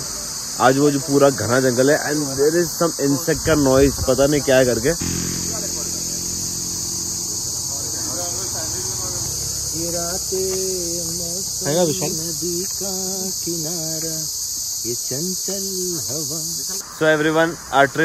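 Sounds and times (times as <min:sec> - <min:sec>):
people talking: 0:00.0 - 0:06.4, 0:07.2 - 0:14.3, 0:14.9 - 0:18.0
high-pitched insect drone: 0:00.0 - 0:18.0.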